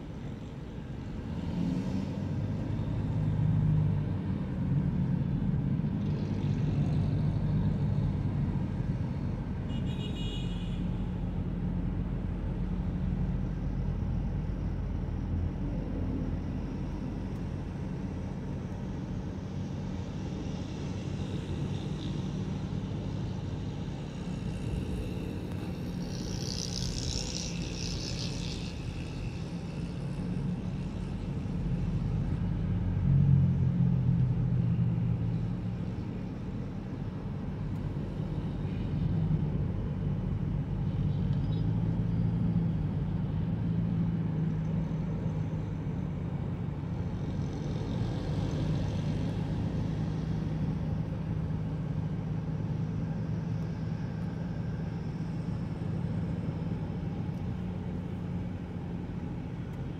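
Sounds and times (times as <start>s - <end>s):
road traffic rumble: 0.0s - 59.9s.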